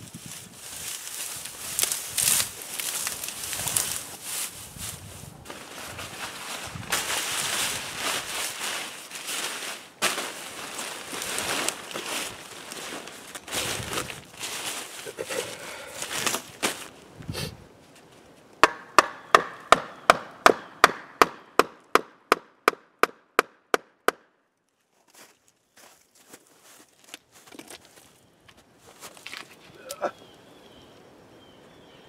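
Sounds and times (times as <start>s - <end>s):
clothing and ground litter rustling: 0.0s - 18.4s
knife chopping dead wood: 18.6s - 24.2s.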